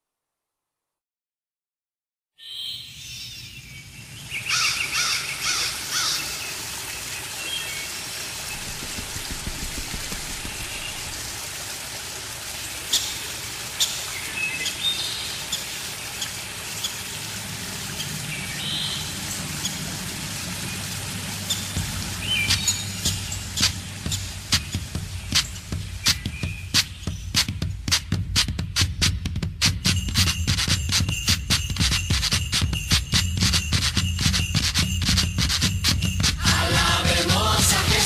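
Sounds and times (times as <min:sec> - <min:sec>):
birds chirping: 0:02.7 - 0:11.6, 0:12.6 - 0:27.7
outdoor ambience: 0:02.9 - 0:38.0
low steady hum: 0:08.2 - 0:25.8.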